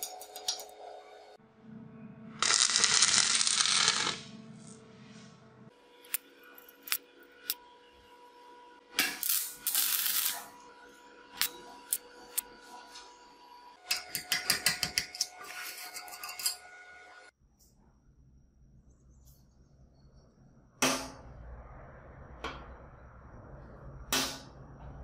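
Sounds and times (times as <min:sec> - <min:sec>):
low hum: 0:16.4 - 0:25.0.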